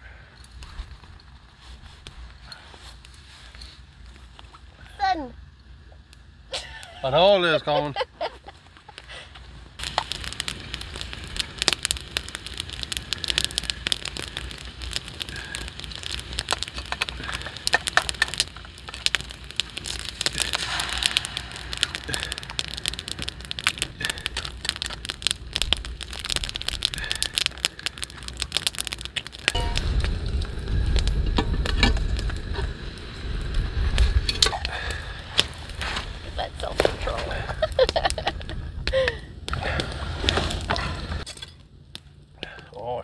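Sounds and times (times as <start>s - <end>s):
campfire crackling: 0.0s - 43.0s
food sizzling in a pot: 9.8s - 26.2s.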